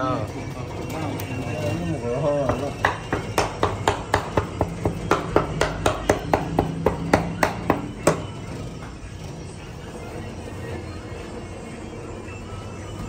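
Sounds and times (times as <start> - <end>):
sharp evenly spaced knocks: 2.4 - 8.4.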